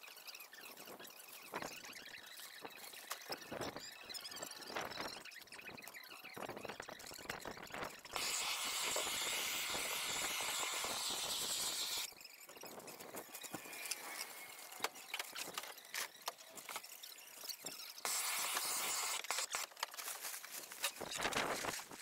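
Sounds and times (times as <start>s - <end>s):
heat gun hissing: 8.2s - 12.1s, 18.0s - 19.6s
plastic wrap clicks and rustles: 19.2s - 22.0s.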